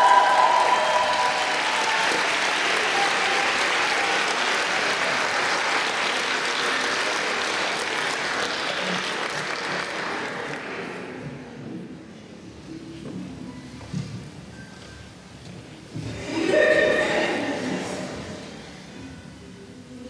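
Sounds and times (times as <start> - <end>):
audience applauding: 0.0 - 11.1.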